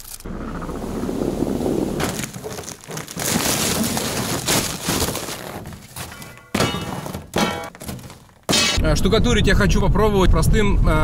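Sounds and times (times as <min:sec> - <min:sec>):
snow crunching: 0:00.0 - 0:08.8
snow-laden tarp sliding: 0:00.9 - 0:06.3
shovel scraping trailer bed: 0:01.7 - 0:08.8.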